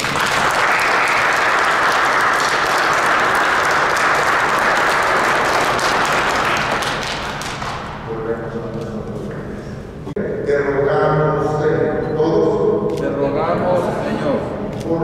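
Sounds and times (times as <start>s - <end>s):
people applauding: 0.0s - 8.0s.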